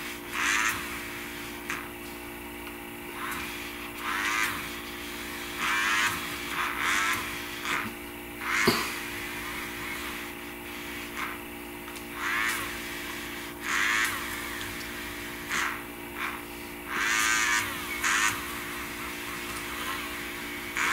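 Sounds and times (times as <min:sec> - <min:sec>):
eraser scratching on paper: 0:00.0 - 0:02.2, 0:03.1 - 0:11.4, 0:12.1 - 0:20.9
electric eraser whirring: 0:00.0 - 0:20.9.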